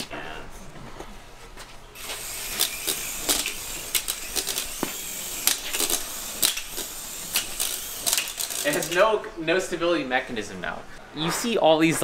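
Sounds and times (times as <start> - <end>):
toy helicopter rotors whirring: 2.0 - 9.0.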